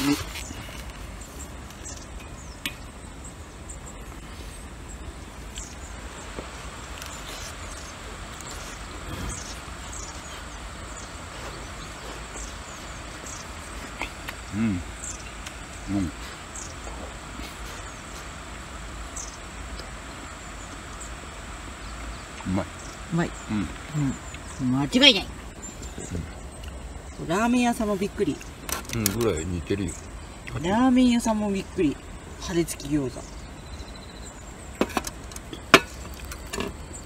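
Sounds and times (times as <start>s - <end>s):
crickets trilling: 0.0s - 37.0s
man chewing: 6.4s - 17.6s
man murmuring with mouth closed: 13.8s - 15.2s.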